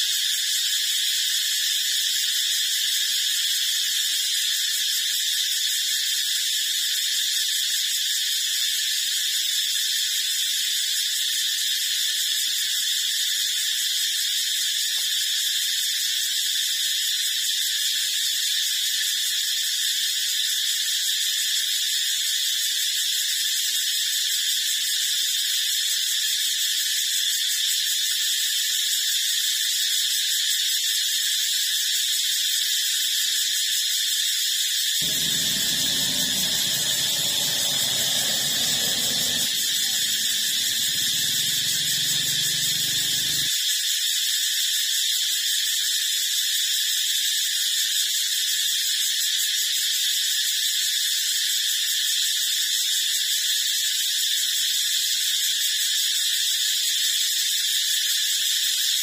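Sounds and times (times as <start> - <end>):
high-pitched buzzing hiss: 35.0 - 43.5.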